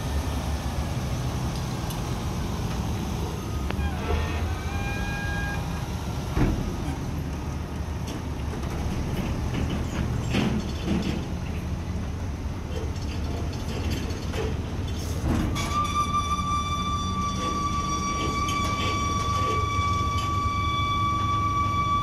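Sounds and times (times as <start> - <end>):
truck engine running: 0.0 - 15.6
metallic clanks and knocks: 8.0 - 11.7, 12.7 - 16.0.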